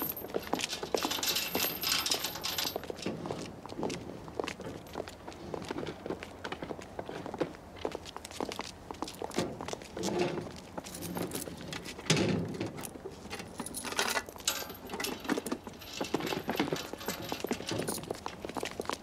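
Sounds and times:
knocking and clattering: 0:13.6 - 0:18.4.

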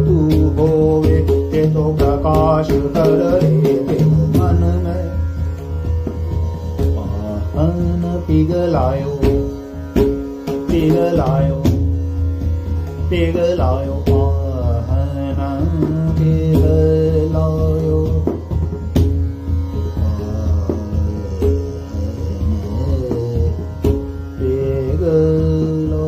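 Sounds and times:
man singing ornamented notes: 0:00.0 - 0:05.5, 0:06.8 - 0:09.6, 0:10.6 - 0:11.8, 0:13.1 - 0:18.4, 0:20.0 - 0:26.0
tanpura drone: 0:00.0 - 0:26.0.

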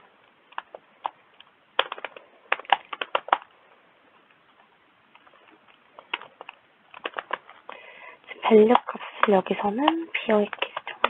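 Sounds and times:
keyboard typing: 0:00.5 - 0:03.5, 0:05.2 - 0:07.8, 0:08.4 - 0:11.0.

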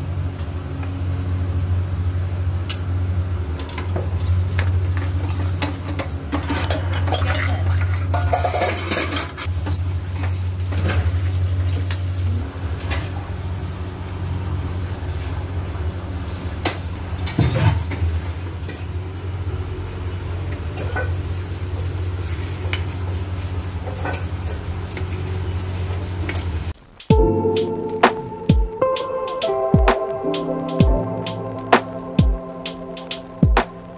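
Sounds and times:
low hum: 0:27.1 - 0:33.9
music: 0:27.1 - 0:33.9.

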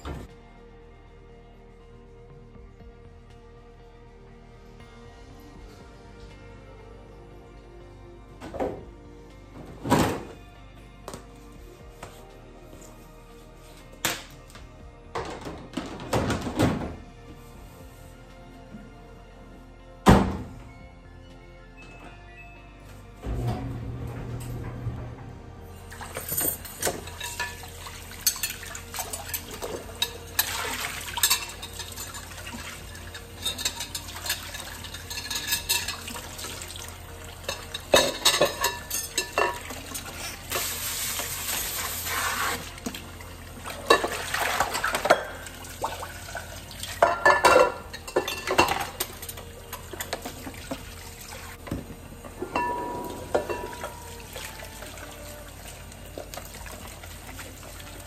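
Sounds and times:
tap water running: 0:25.9 - 0:58.0
dishes clattering in sink: 0:26.0 - 0:36.6, 0:37.4 - 0:40.7, 0:43.7 - 0:45.5, 0:46.4 - 0:50.8, 0:51.6 - 0:54.3.

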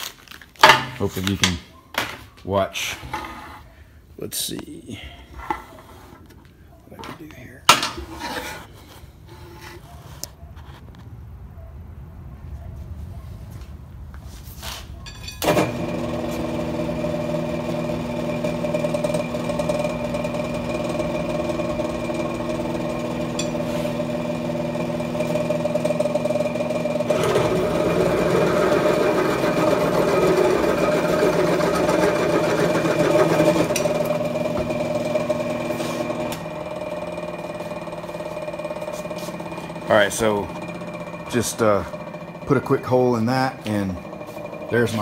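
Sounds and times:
drill bit grinding through metal: 0:15.4 - 0:45.0
milling machine motor hum: 0:15.4 - 0:45.0.

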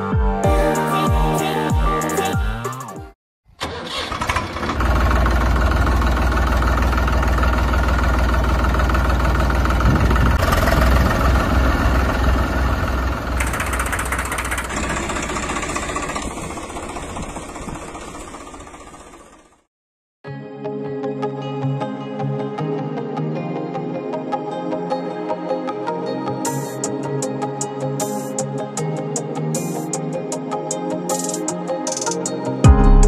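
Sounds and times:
vehicle engine throbbing: 0:04.4 - 0:19.7.

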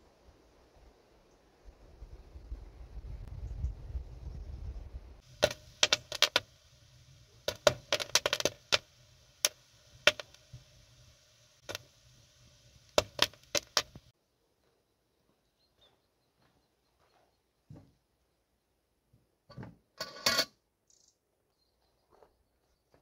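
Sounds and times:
popcorn popping in a pan: 0:05.2 - 0:14.1.

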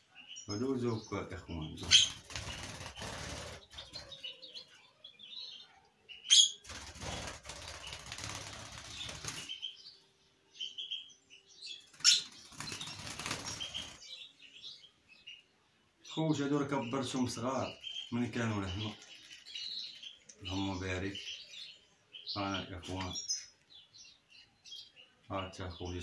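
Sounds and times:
soft bird chirps: 0:00.0 - 0:26.0
birds flapping wings: 0:01.8 - 0:04.2, 0:06.6 - 0:09.6, 0:12.0 - 0:14.0.

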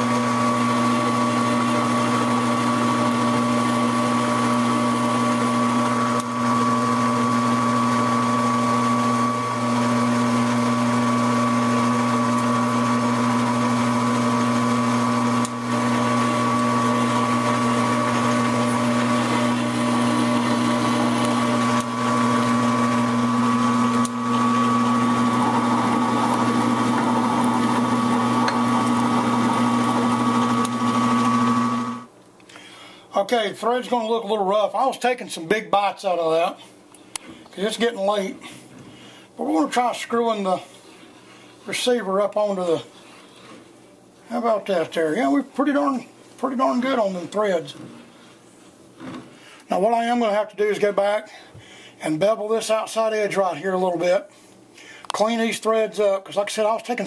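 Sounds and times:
metal lathe humming and whining: 0:00.1 - 0:32.1.

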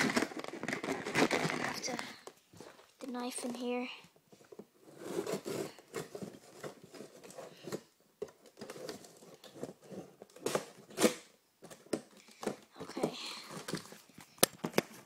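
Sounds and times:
knife cutting cardboard: 0:04.9 - 0:07.9.

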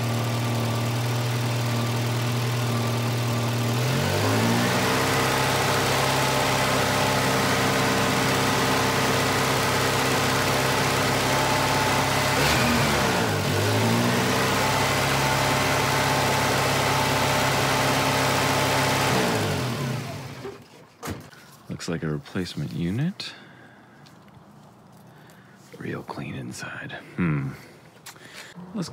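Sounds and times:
car engine high idle: 0:00.0 - 0:20.6
engine switched off running down: 0:00.0 - 0:20.6.

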